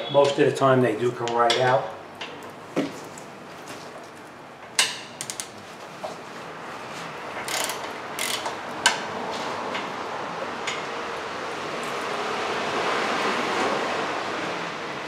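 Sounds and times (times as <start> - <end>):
hand ratchet clicking: 7.4 - 8.6.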